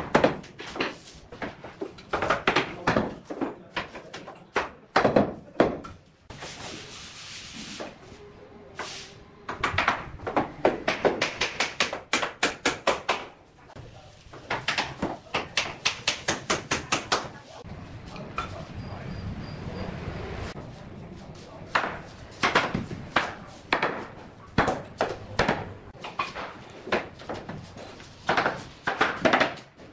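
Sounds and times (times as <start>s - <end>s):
wooden knocks of hammered planks: 0.0s - 6.0s, 21.7s - 27.6s, 28.2s - 29.9s.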